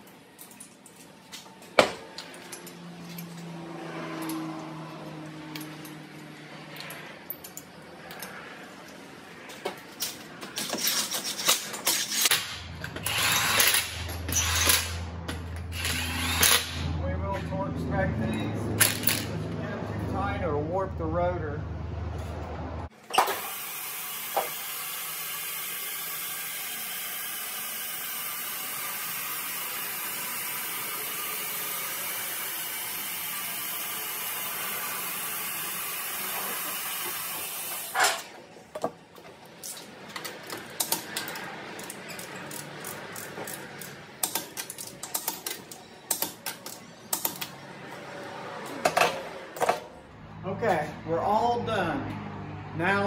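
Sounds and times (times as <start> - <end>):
hydraulic car lift hissing: 23.1 - 38.3
metal clicks and clanks: 39.6 - 47.6.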